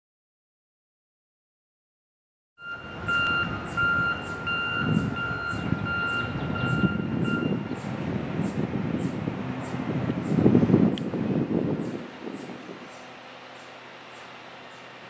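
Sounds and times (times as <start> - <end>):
reversing alarm beeping: 2.6 - 7.7
low rumble of vehicles: 2.6 - 15.0.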